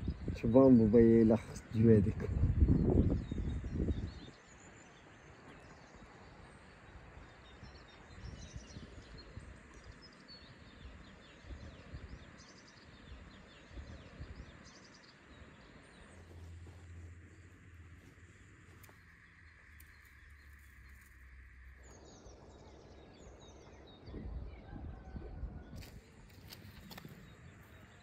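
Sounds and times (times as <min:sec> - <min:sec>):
small birds chirping: 0:00.0 - 0:25.1, 0:25.7 - 0:28.0
low uneven rumble: 0:13.0 - 0:28.0
steady low hum: 0:13.6 - 0:24.6.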